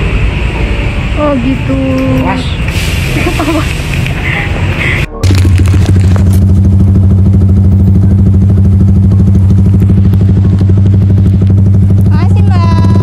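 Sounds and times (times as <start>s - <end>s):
motorcycle engine idling: 5.2s - 13.0s.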